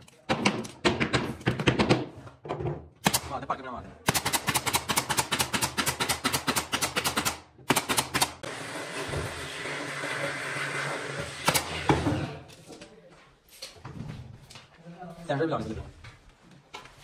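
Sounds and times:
nail gun firing into wood: 3.0s - 3.4s, 4.1s - 8.4s, 11.4s - 12.0s.

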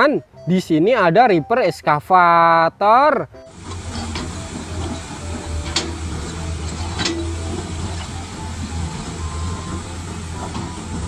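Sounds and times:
excavator diesel engine running: 3.4s - 11.0s.

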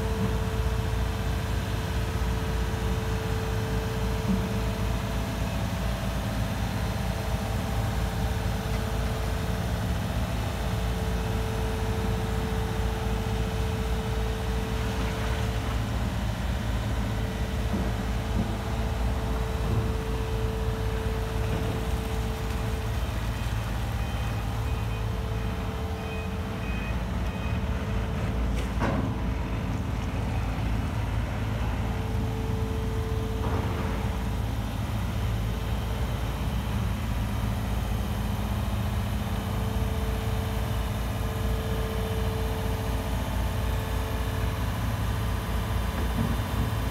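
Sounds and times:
excavator diesel engine and hydraulics: 0.0s - 46.9s
faint beeps: 24.0s - 28.0s.

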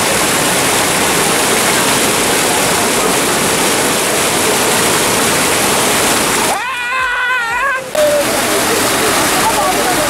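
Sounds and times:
floodwater rushing over a ledge: 0.0s - 10.0s.

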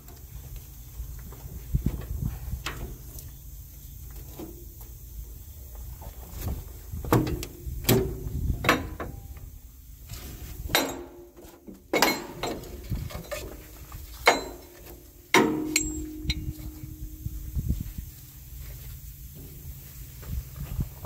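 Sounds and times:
metal clanks and knocks: 7.1s - 9.4s, 10.6s - 16.9s.

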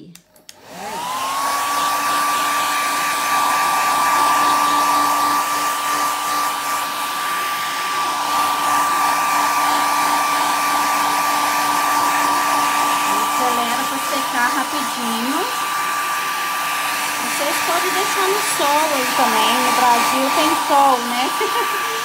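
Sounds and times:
hair dryer switch click: 0.0s - 0.8s
hair dryer blowing: 0.0s - 22.0s.

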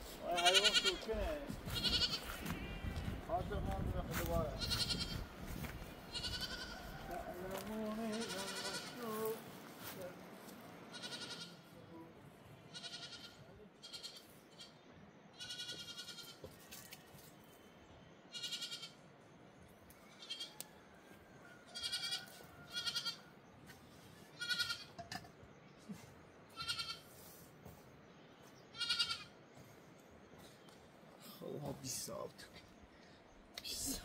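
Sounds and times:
young animals bleating: 0.2s - 3.2s, 4.5s - 5.4s, 6.1s - 10.0s, 10.9s - 12.0s, 12.7s - 16.5s, 18.3s - 19.0s, 20.1s - 20.7s, 21.7s - 23.3s, 24.3s - 25.0s, 26.5s - 27.2s, 28.7s - 29.4s.

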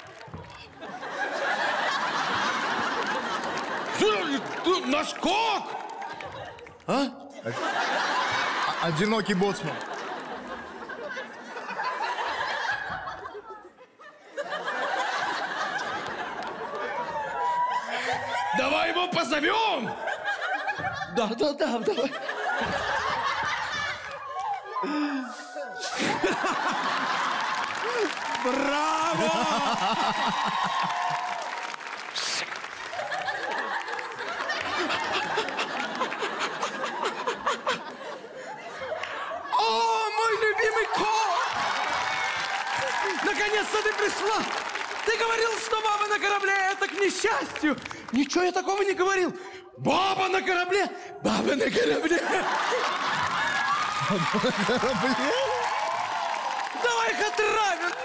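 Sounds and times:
scattered clapping: 0.0s - 7.0s, 8.2s - 11.2s, 14.6s - 17.2s, 26.0s - 38.0s, 40.6s - 49.0s, 52.3s - 58.0s
audience laughing: 0.0s - 48.6s, 50.9s - 58.0s.

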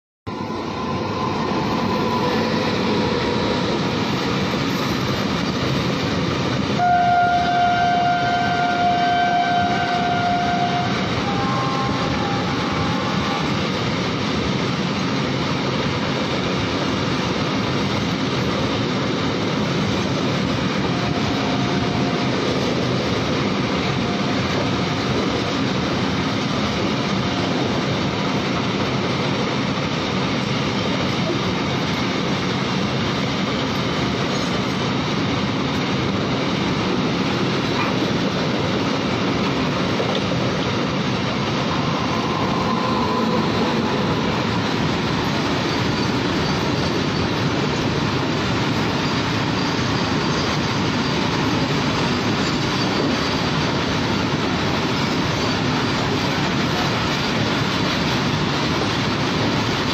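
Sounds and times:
freight train rumbling past: 0.3s - 59.9s
train horn: 6.8s - 13.7s, 20.8s - 22.7s, 23.8s - 25.3s.

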